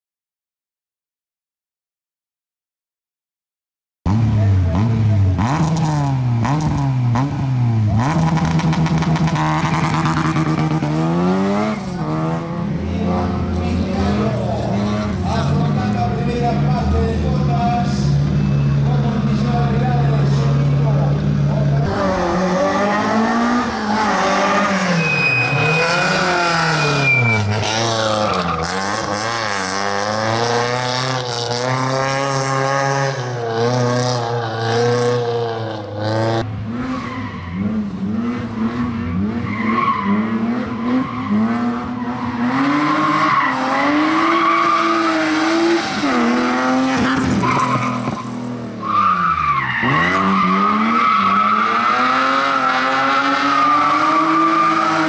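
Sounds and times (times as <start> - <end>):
car engines revving: 4.1 - 55.0
rear tyres spinning: 20.7 - 32.6, 33.4 - 55.0
tyres squealing: 22.9 - 29.2.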